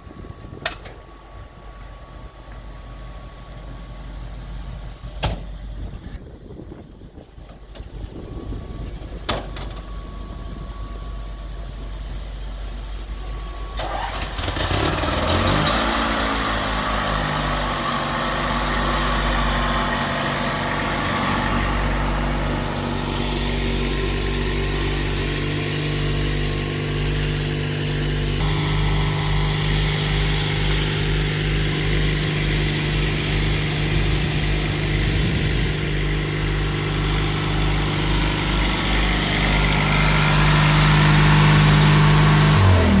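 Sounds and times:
truck engine running: 0:00.0 - 0:43.0
hiss of water and pump: 0:28.4 - 0:42.9.

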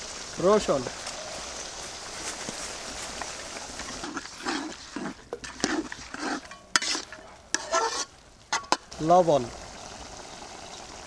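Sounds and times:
faint sizzle: 0:00.0 - 0:04.6, 0:07.6 - 0:11.0
spoon scraping metal pot: 0:03.8 - 0:08.8.

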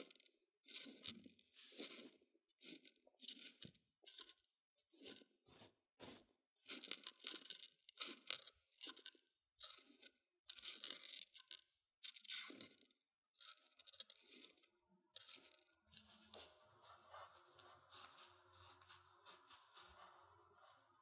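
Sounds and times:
dried beans rattling and crunching: 0:06.7 - 0:15.6.

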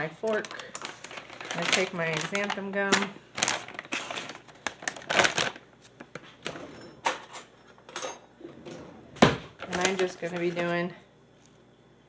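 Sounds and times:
plastic pouch crinkling: 0:00.0 - 0:06.2, 0:09.6 - 0:10.7.

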